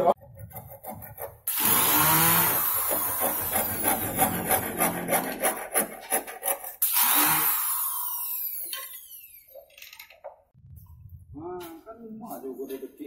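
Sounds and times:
hand tool rasping on wood: 0.1s - 7.5s.

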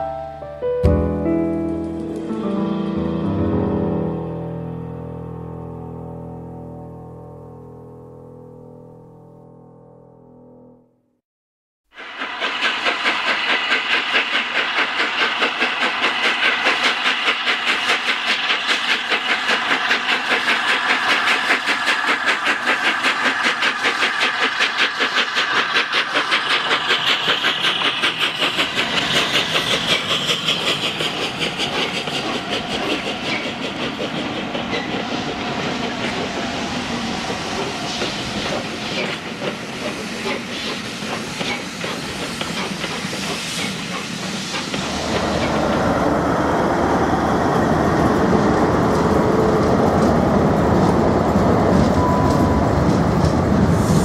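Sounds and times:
steam hissing: 11.9s - 54.0s
steam locomotive chuffing: 11.9s - 54.0s.

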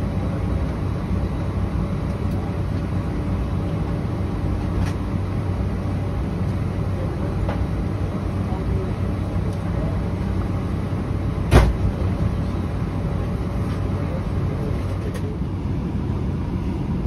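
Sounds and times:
cabin ventilation rumble and air rush: 0.0s - 17.0s.

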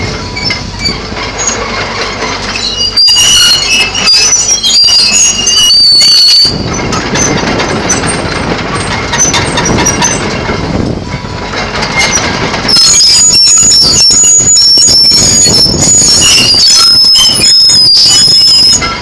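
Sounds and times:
excavator engine running: 0.0s - 19.0s
metallic track squeals: 0.0s - 19.0s
track chains clanking: 0.0s - 19.0s.

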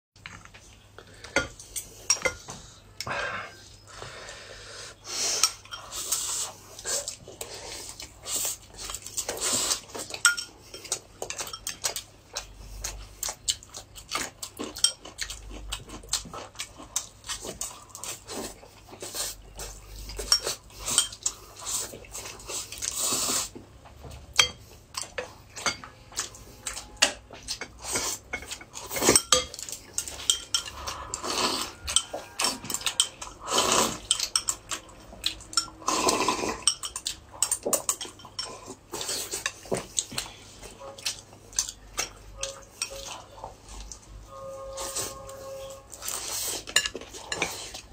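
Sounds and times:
chewing: 5.4s - 44.1s, 44.8s - 47.9s
slurping: 29.9s - 34.9s.

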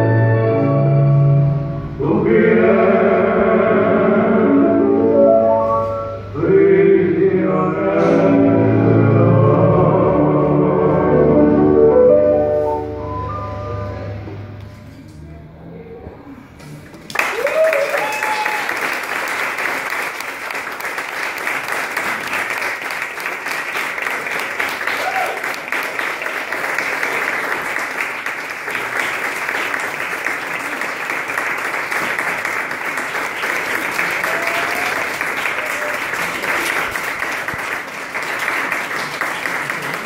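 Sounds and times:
audience applauding: 17.0s - 40.0s.

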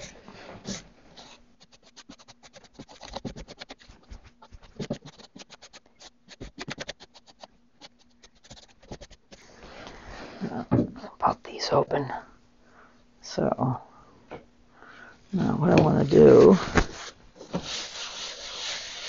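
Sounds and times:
paintbrush strokes on wood: 16.2s - 19.0s.

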